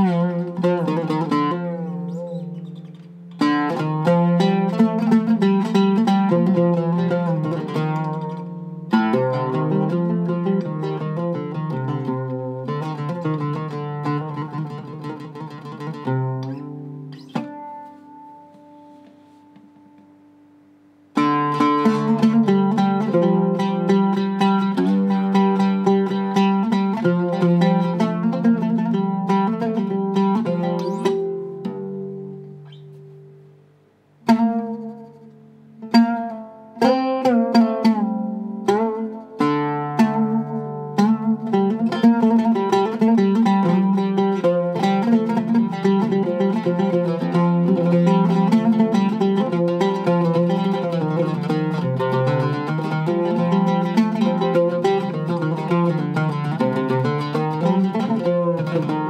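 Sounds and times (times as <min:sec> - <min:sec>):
plucked oud notes: 0:00.0 - 0:59.0.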